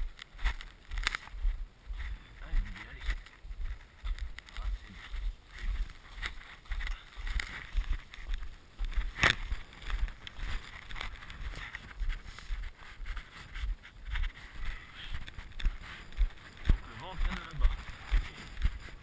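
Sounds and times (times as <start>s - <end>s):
sled sliding over snow: 4.6s - 19.0s.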